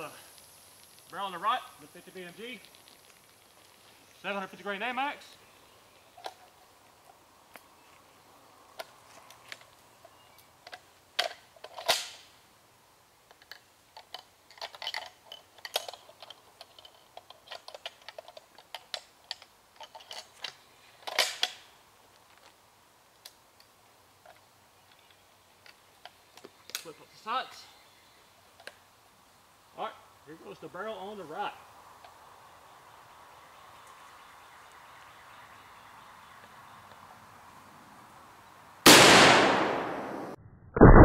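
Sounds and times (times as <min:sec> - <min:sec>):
metallic clicks of rifle handling: 0:13.3 - 0:21.7.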